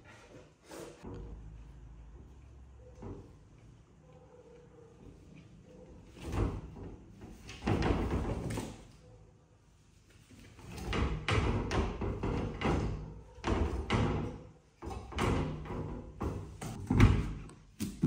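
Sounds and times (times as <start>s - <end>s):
knocks against glass cabinet doors: 10.8s - 17.4s.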